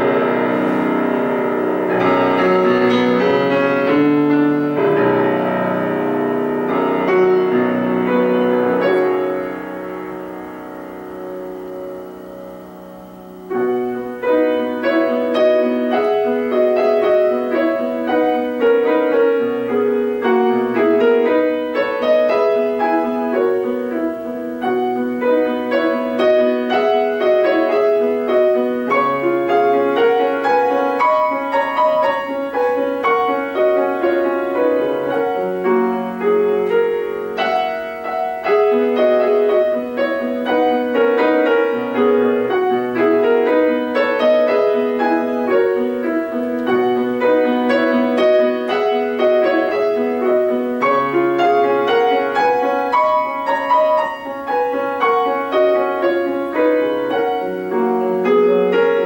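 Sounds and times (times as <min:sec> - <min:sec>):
grand piano solo piece: 0:00.0 - 0:59.0.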